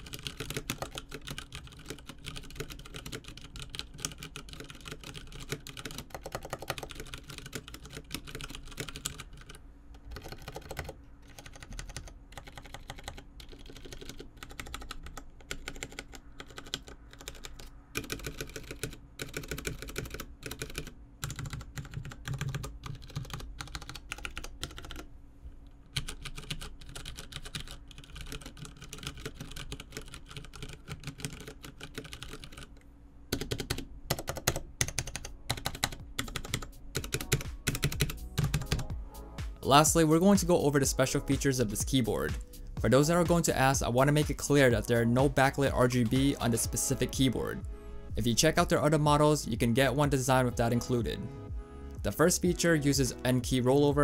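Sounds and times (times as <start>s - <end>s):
mechanical keyboard typing: 0.0s - 25.1s, 25.9s - 38.9s.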